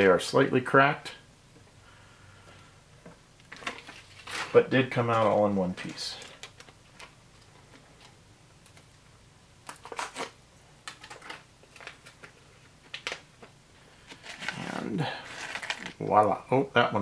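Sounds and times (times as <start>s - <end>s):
cardboard packet rustling: 3.5s - 8.1s, 9.7s - 13.3s, 14.0s - 16.2s.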